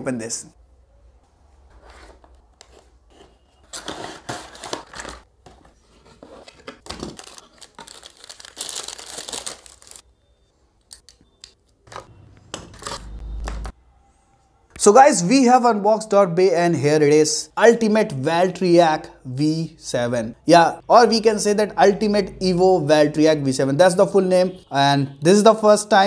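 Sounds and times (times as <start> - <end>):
packing crinkling and tearing: 3.7 - 5.3, 6.5 - 10.0.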